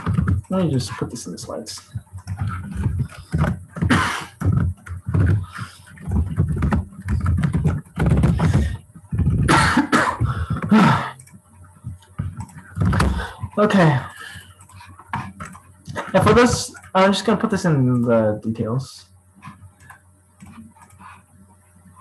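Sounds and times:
person making muffled vocal sounds: 0:00.0 - 0:11.3, 0:12.8 - 0:14.4.

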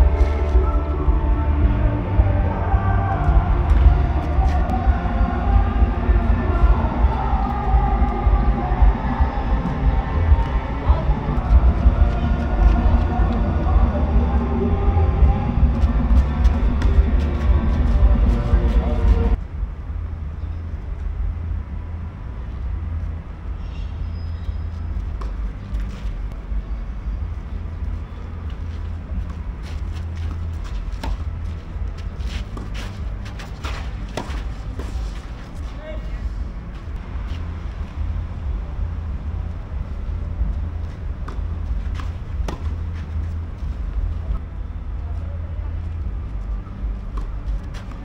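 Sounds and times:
low outdoor rumble: 0:00.0 - 0:48.0
racket hitting tennis ball: 0:32.3 - 0:35.3.

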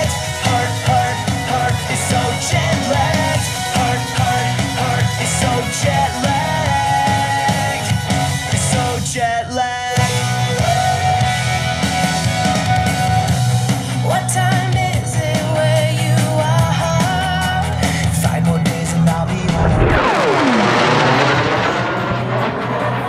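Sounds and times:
rock music with singing: 0:00.0 - 0:23.0
steady bass line: 0:19.1 - 0:22.9.

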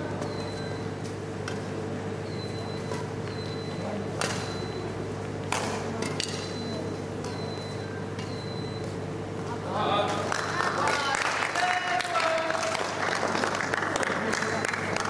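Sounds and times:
steady low hum: 0:00.0 - 0:15.0
rackets striking shuttlecock: 0:04.2 - 0:04.5, 0:05.4 - 0:06.6.

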